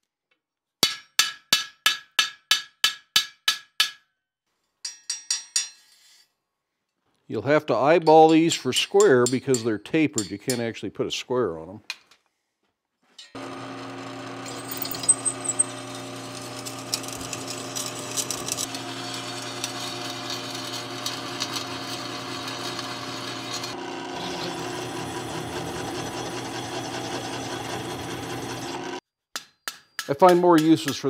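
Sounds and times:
drill bit cutting iron: 13.4s - 29.0s
drill press motor hum: 13.4s - 29.0s.

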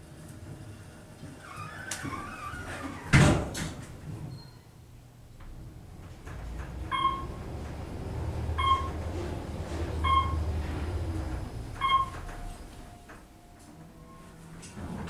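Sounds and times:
elevator motion hum: 0.0s - 15.0s
elevator chime: 6.9s - 7.6s, 8.5s - 9.1s, 10.0s - 15.0s.

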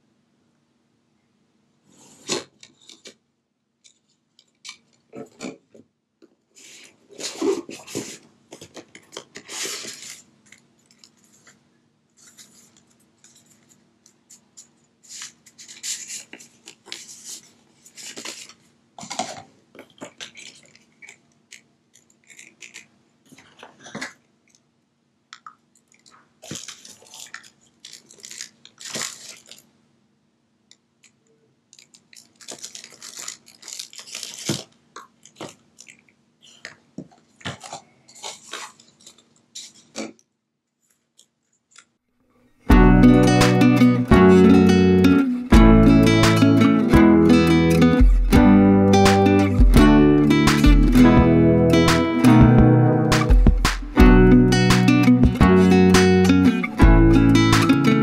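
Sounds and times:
cardboard packaging rustling: 6.6s - 24.2s, 26.0s - 29.7s, 31.8s - 40.1s
plastic bags crinkling: 7.1s - 11.6s, 15.1s - 24.2s, 25.8s - 29.7s, 31.7s - 40.1s.

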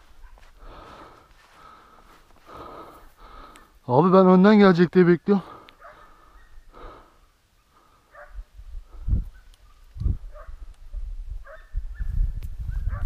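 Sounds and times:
distant dogs barking: 0.0s - 1.8s, 5.4s - 10.7s, 11.4s - 13.0s.

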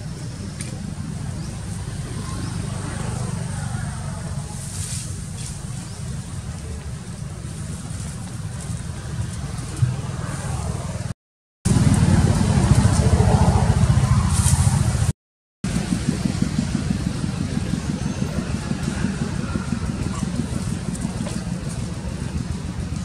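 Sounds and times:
low rumble: 11.7s - 15.1s.

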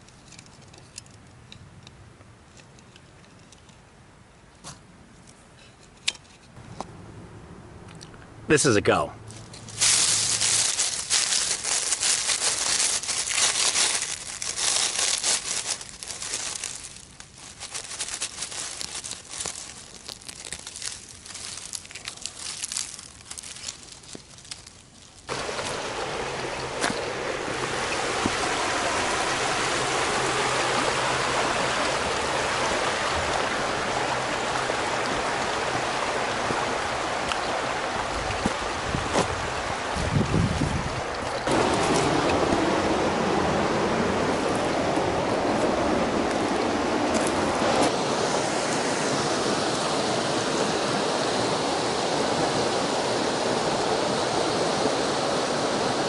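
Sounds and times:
stream water rushing: 8.5s - 24.6s, 25.3s - 56.0s
dry leaves crackling and rustling: 9.3s - 49.8s.

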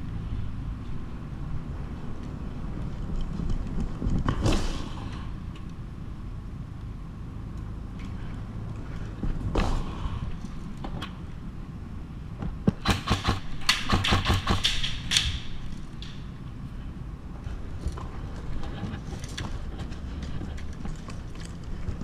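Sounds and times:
sharp knocks and clicks: 12.4s - 16.3s
footsteps on concrete floor: 17.4s - 22.0s.

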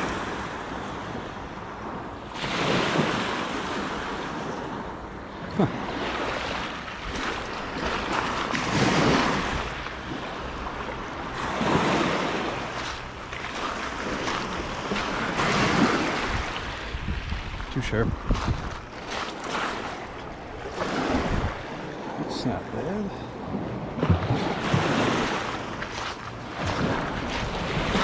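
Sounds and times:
small waves washing ashore: 0.0s - 28.0s
wind rumbling on microphone: 6.7s - 22.2s.

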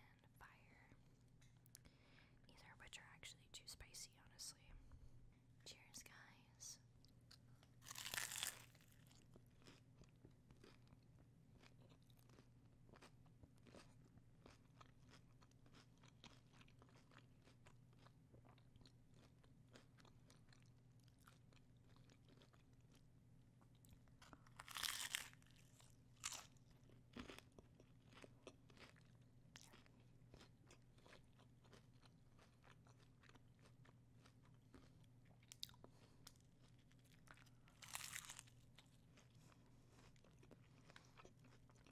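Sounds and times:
quiet chewing: 7.0s - 41.9s
taco shell crunching: 7.8s - 23.0s, 23.9s - 39.3s.

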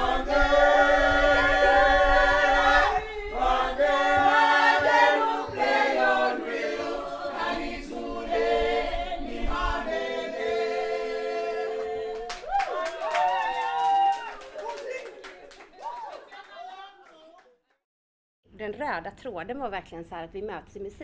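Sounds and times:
choir singing in harmony: 0.0s - 12.5s.

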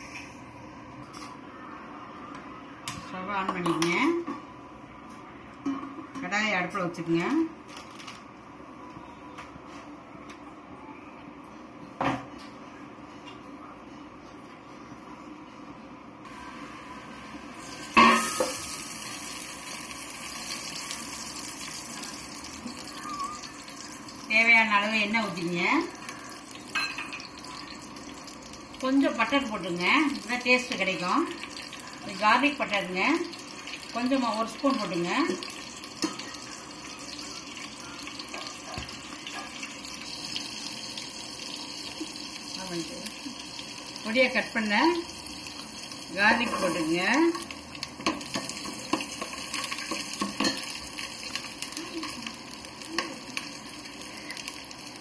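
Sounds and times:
oil sizzling and spattering in pot: 16.3s - 55.0s.

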